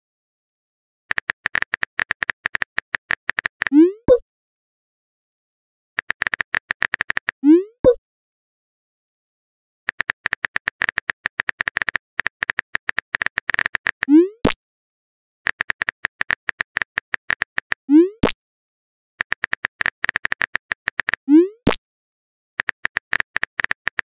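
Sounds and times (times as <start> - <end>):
phone keyboard clicks: 1.1 - 3.7, 6.0 - 7.4, 9.9 - 14.1, 15.5 - 17.8, 19.2 - 21.2, 22.6 - 24.0.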